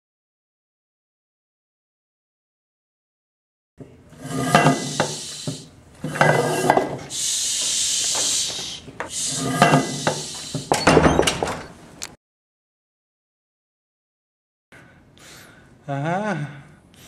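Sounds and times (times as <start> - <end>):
steady hiss: 4.5 - 5.8, 6.6 - 10.8.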